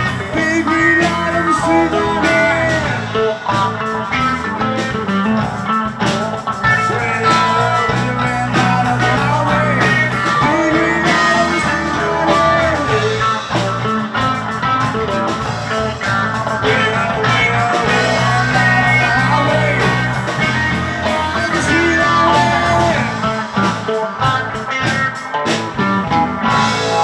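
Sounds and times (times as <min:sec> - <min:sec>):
drum kit hits: 0:00.0 - 0:27.0
electric bass: 0:00.0 - 0:27.0
electric guitar lead: 0:00.0 - 0:27.0.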